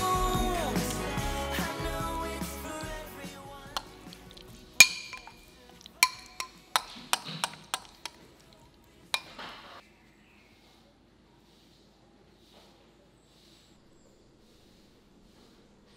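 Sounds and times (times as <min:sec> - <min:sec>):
metal spoon clinking on glass bowl: 0:03.8 - 0:08.2, 0:09.2 - 0:09.4
spoon scraping bowl: 0:03.8 - 0:08.5.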